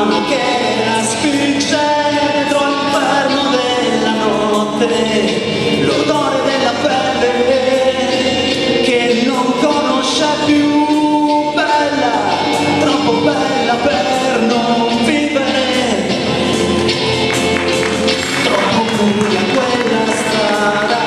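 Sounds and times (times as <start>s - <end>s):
man singing into microphone: 0.0s - 17.1s, 18.4s - 21.0s
instrumental backing track: 0.0s - 21.0s.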